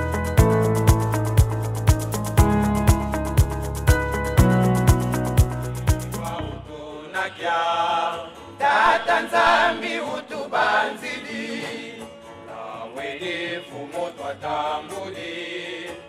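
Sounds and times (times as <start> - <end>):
acoustic guitar: 0.0 - 16.0
men singing together: 6.2 - 16.0.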